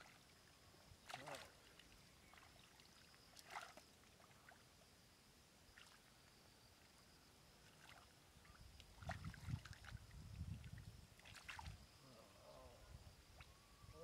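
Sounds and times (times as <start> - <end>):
hands splashing in mud and water: 3.4 - 3.8, 11.2 - 11.8.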